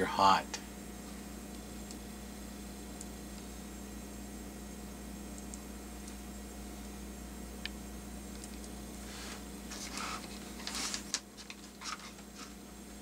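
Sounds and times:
plastic wires rustling: 0:09.2 - 0:12.6.

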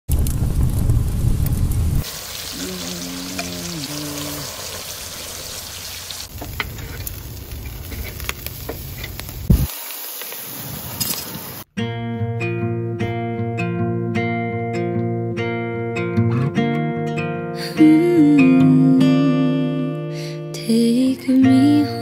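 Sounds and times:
fire rumbling: 0:00.1 - 0:11.6
meat sizzling on grill: 0:00.1 - 0:11.7.

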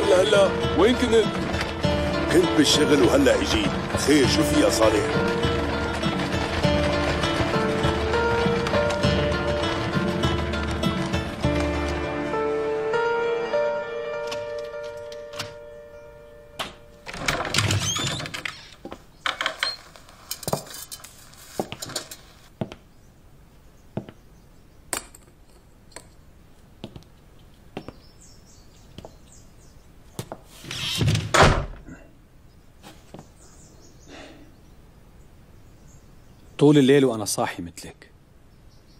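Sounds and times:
wooden door squeaking open: 0:00.0 - 0:12.2, 0:14.2 - 0:20.0, 0:30.6 - 0:31.9
footsteps: 0:00.0 - 0:12.8, 0:19.7 - 0:22.9.

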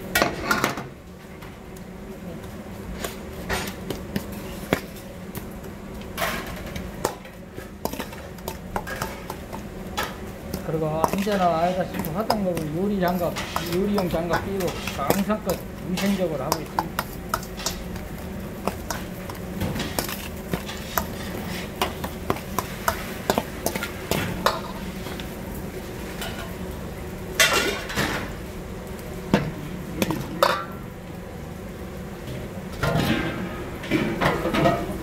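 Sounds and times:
steady hum: 0:00.0 - 0:35.0
metal spoon scraping steel bowl: 0:11.0 - 0:18.0.

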